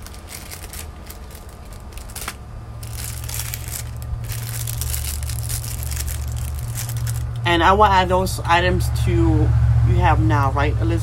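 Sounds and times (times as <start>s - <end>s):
plastic bags crinkling: 0.0s - 7.4s
low steady rumble: 0.0s - 11.0s.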